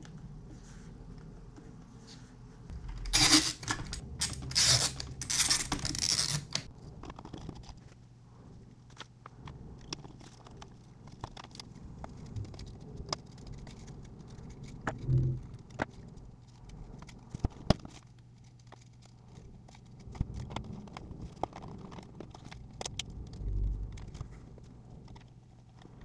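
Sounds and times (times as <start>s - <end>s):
plastic parts scraping and rustling: 1.7s - 8.0s, 8.7s - 26.0s.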